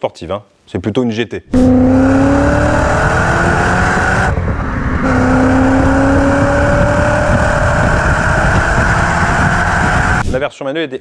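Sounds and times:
road noise: 1.5 - 10.3
car engine accelerating hard: 1.6 - 10.2.

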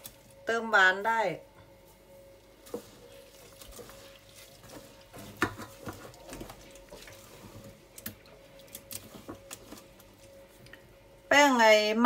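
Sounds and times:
faint steady hum: 0.0 - 12.0
wet squelching of kneading: 2.3 - 11.0.

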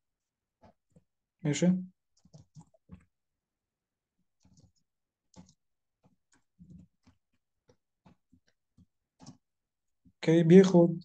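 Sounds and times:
faint keyboard typing: 1.9 - 3.2, 4.2 - 10.2.

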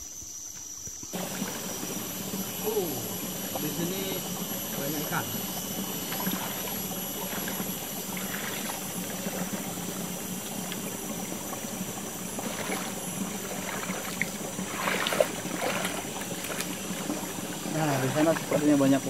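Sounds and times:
person wading with splashes: 1.1 - 19.0
stream running over rocks: 1.1 - 19.0.

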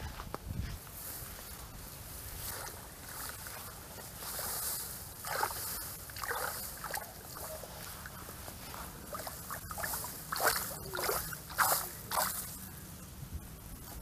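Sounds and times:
grass rustling: 0.0 - 14.0
muddy water sloshing and splashing: 2.4 - 12.7.

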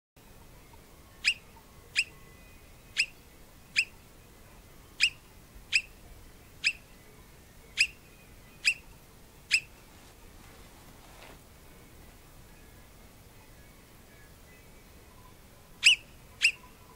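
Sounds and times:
marmot whistled alarm calls: 1.2 - 2.2, 2.9 - 4.0, 5.0 - 6.0, 6.6 - 6.8, 7.7 - 8.9, 9.5 - 9.7, 15.8 - 16.9.

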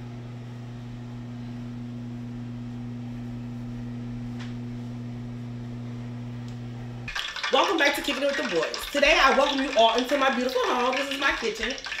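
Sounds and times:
steady low hum: 0.0 - 7.1.

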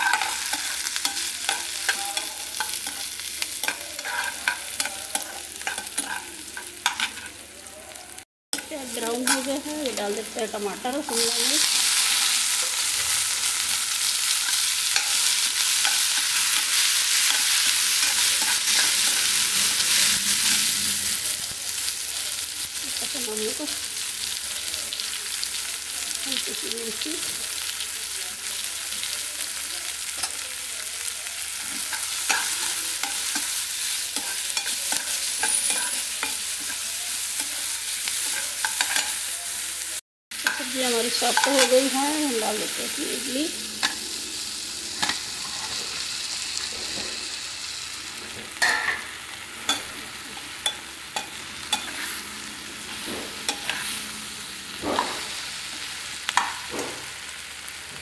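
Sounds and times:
spoon scraping and tapping pan: 0.0 - 7.3, 49.7 - 52.2
vegetables sizzling in oil: 0.0 - 58.0.

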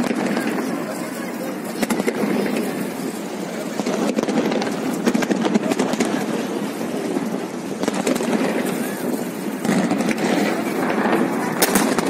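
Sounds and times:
people's voices: 0.0 - 12.0.

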